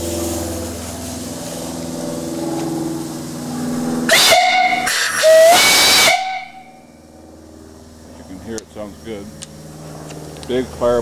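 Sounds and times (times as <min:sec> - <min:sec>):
steam hiss: 0:04.1 - 0:06.6
steam whistle blasts: 0:04.1 - 0:06.9.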